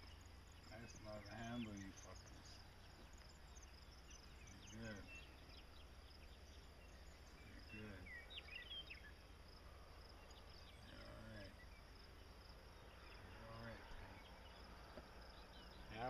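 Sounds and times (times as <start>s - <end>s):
insects chirping: 0.0s - 16.0s
faint distant voices: 0.6s - 3.2s, 4.0s - 8.9s.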